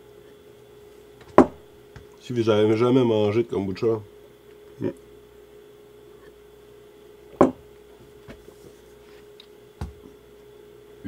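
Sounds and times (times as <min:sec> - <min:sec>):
faint hum: 0:00.0 - 0:11.0
knocks on a kitchen counter: 0:01.3 - 0:02.1, 0:07.4 - 0:07.6, 0:09.8 - 0:10.0.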